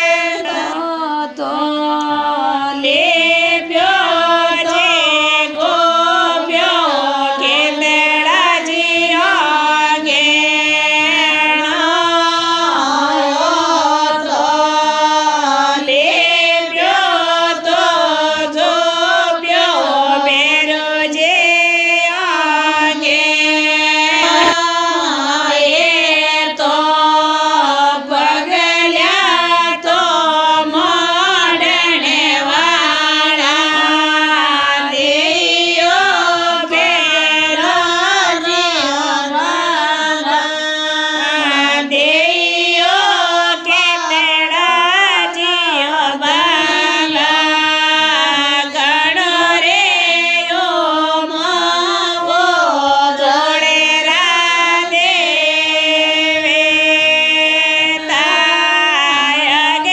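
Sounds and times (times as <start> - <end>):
person singing devotional song: 0.0 - 59.9
steady held drone: 24.0 - 26.2, 46.4 - 48.5.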